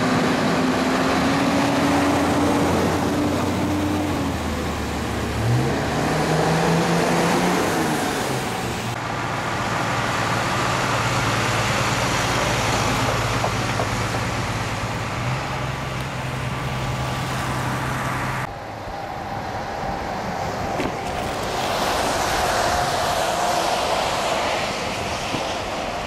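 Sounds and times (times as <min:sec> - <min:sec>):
roadway noise hiss: 0:00.0 - 0:26.0
heavy vehicles idling: 0:08.5 - 0:21.5.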